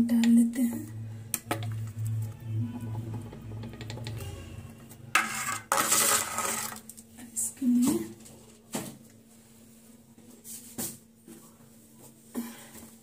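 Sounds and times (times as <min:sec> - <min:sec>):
spoon scraping metal bowl: 0:05.2 - 0:06.8.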